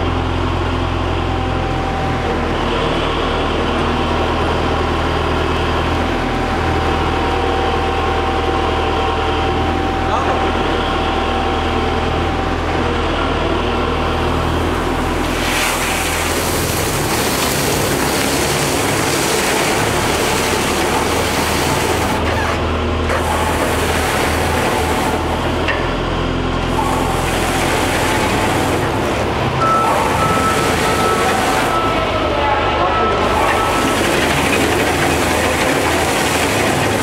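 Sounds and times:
shredder machine hum: 0.0 - 37.0
iron chips rushing and grinding: 32.9 - 37.0.

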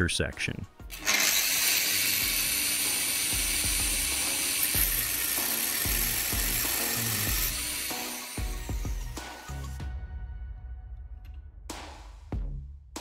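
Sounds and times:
angle grinder cutting metal: 0.9 - 9.6.

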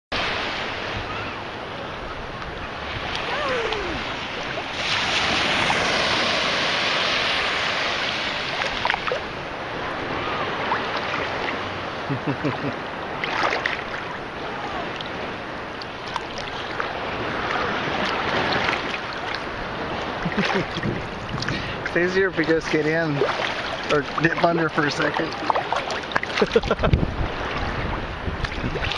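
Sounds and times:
sea water sloshing: 0.2 - 28.9
wind on microphone: 16.3 - 22.0, 25.2 - 28.9.

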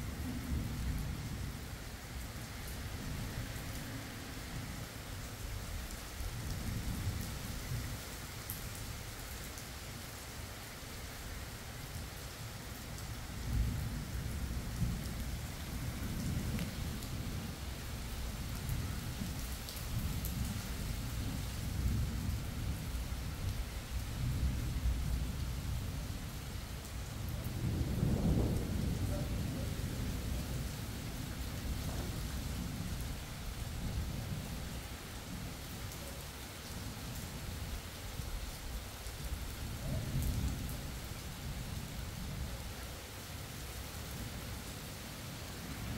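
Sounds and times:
rain hissing down: 0.0 - 45.9
thunder rumbling: 27.2 - 34.6.

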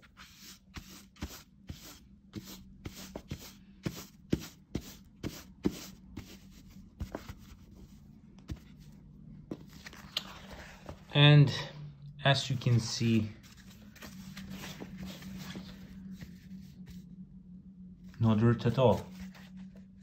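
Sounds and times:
paper towel rubbing fabric: 0.0 - 9.0, 12.6 - 17.1.

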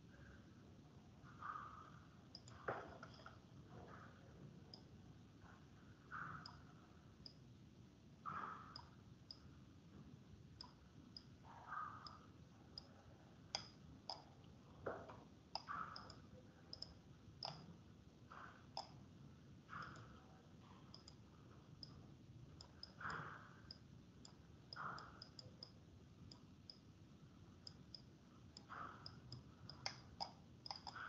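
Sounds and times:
computer mouse clicks: 1.4 - 4.1, 4.7 - 4.9, 6.1 - 7.4, 8.3 - 9.5, 10.6 - 19.0, 19.7 - 26.8, 27.6 - 31.0.

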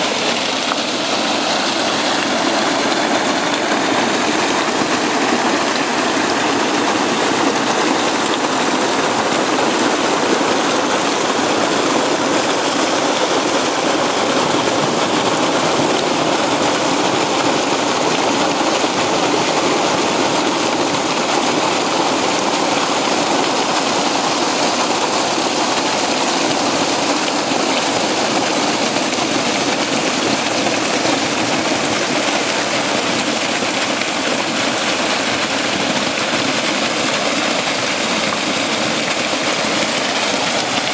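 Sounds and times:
water rushing over rocks: 0.0 - 40.9.

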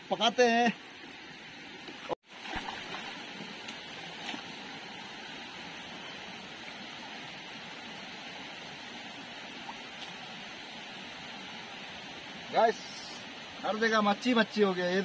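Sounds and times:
stream water running over rocks: 0.0 - 15.0
small splashes: 1.9 - 4.5.

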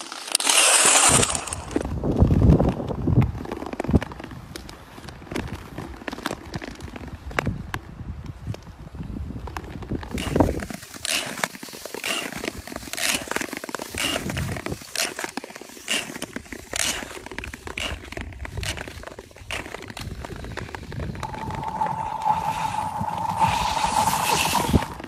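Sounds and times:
ice skates on thin ice: 0.0 - 7.6, 8.3 - 25.0
high-pitched ringing chirps from ice: 21.2 - 25.0
steady ringing tone through ice: 21.2 - 25.0.

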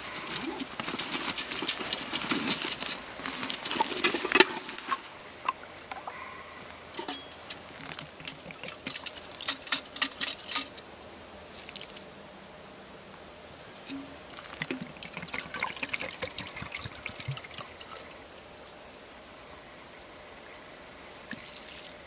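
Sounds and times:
rustling of clothing and kit: 0.0 - 5.2.

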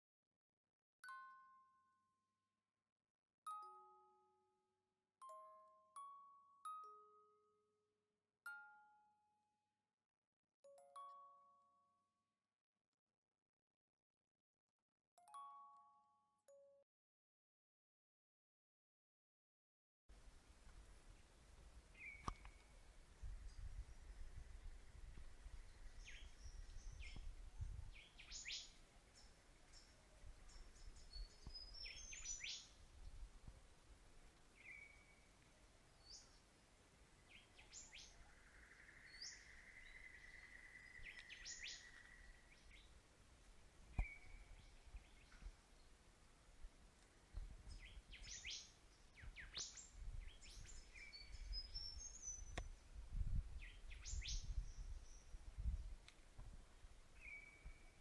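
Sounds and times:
birds chirping: 22.0 - 32.8, 37.2 - 43.0.

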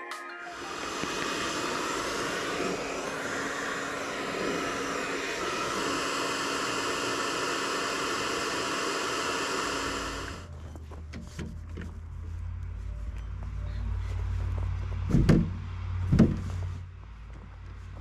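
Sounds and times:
hair dryer blowing: 0.5 - 10.5
low hum: 0.5 - 10.9.

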